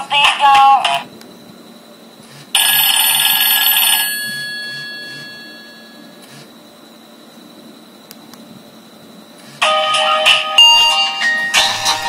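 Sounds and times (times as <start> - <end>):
electronic ringtone chord: 9.6 - 12.0.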